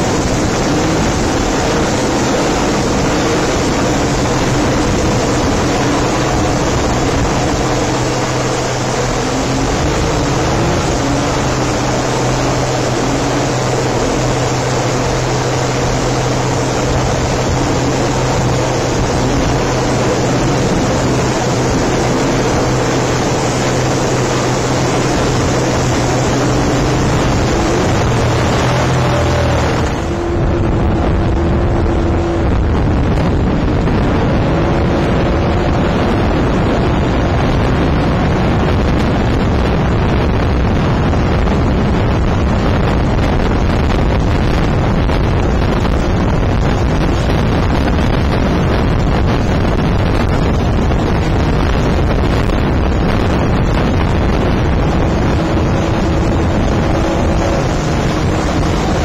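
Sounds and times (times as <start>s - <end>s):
helicopter engine and rotor: 0.0s - 30.6s
outboard motor running: 0.0s - 59.0s
wind buffeting microphone: 0.0s - 59.0s.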